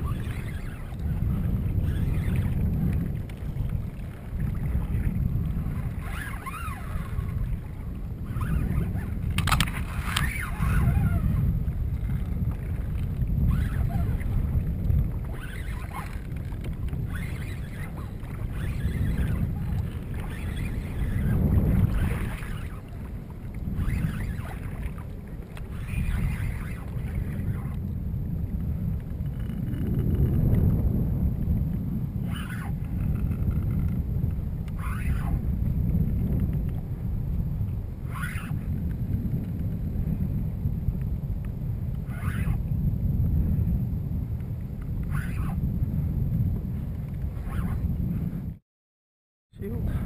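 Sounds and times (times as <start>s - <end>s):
water splashing against kayak hull: 0.0s - 27.9s
wind buffeting microphone: 0.0s - 48.6s, 49.5s - 50.0s.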